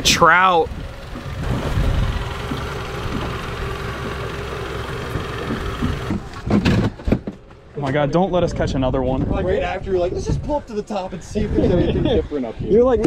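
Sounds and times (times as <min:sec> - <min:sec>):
boat engine idling: 0:00.0 - 0:07.8.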